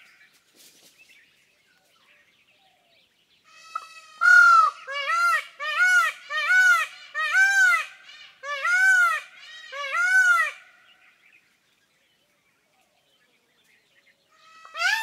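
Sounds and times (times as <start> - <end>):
peafowl calling: 3.5 - 11.0, 14.3 - 15.0.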